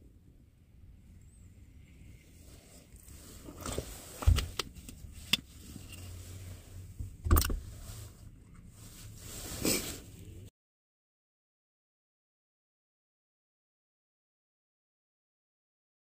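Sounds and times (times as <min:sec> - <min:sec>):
low steady hum: 0:00.0 - 0:10.5
objects being handled: 0:02.6 - 0:10.3.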